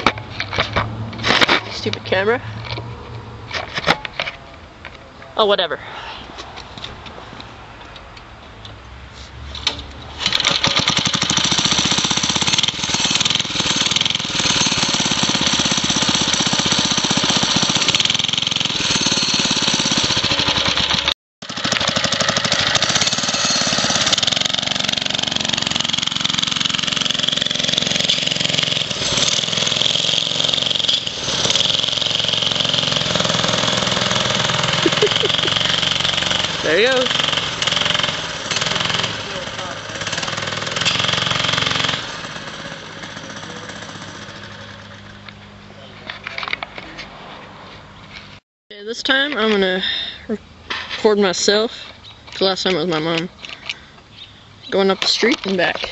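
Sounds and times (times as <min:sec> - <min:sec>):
mini bike engine running: 0:10.2 - 0:14.6, 0:19.6 - 0:45.2.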